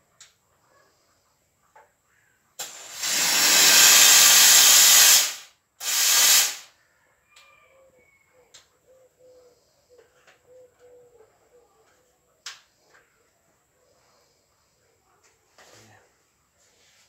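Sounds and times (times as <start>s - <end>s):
steam blasts from steam cleaner: 2.6s - 6.7s.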